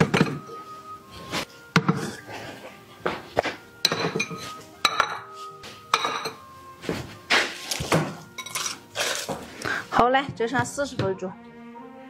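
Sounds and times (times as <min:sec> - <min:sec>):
porcelain bowls clinking: 0:00.0 - 0:00.6, 0:03.8 - 0:06.5, 0:07.7 - 0:09.4.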